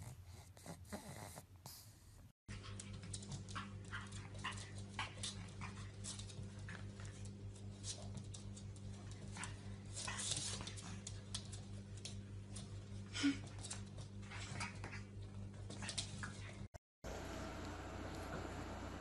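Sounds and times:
puppy scuffling: 2.5 - 16.7.

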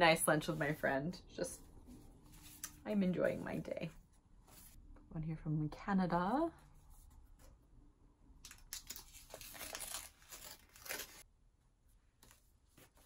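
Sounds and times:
faint paper rustling: 1.6 - 2.9
paper envelope tearing: 8.7 - 11.2.

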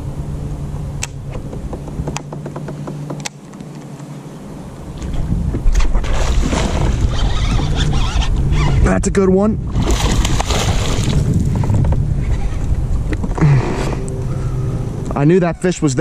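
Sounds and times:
steady low hum: 0.0 - 16.0
fish splashing at water surface: 9.8 - 11.3.

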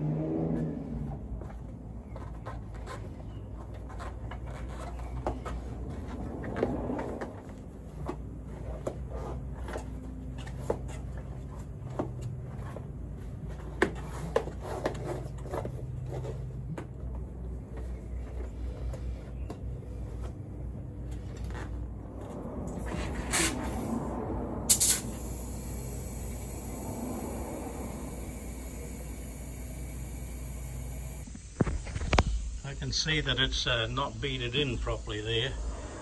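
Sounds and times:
steady low hum: 0.7 - 36.0
tyre rubbing against wheel rim: 2.1 - 16.7.

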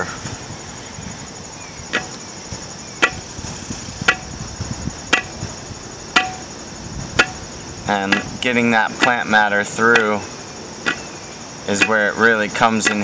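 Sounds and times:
high insect chorus: 0.0 - 13.0
sharp ringing knocks: 1.9 - 3.4, 4.0 - 4.4, 5.1 - 13.0.

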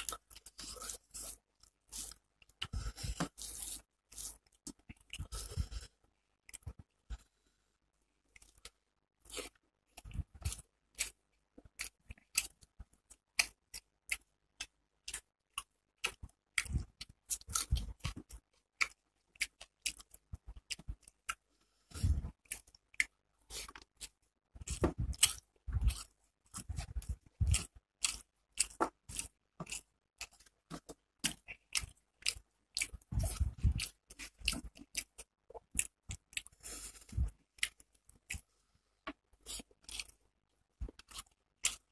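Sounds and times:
chewing and wet mouth clicks: 8.3 - 21.4, 22.4 - 24.2, 37.6 - 38.5.

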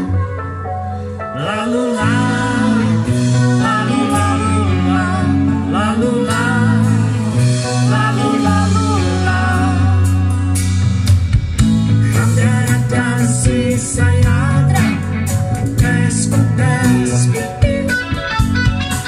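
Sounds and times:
live rock band: 0.0 - 19.0
woman singing: 1.4 - 7.2, 7.8 - 10.2.

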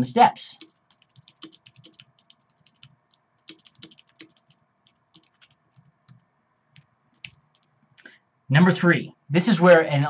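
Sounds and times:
faint keyboard typing: 0.6 - 8.2.

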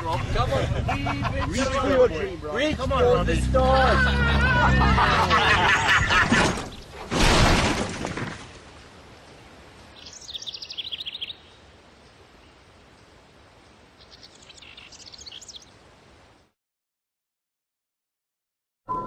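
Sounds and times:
car speeding away over dirt: 2.5 - 6.2
bird chirping trills: 9.2 - 13.1, 13.9 - 15.8.

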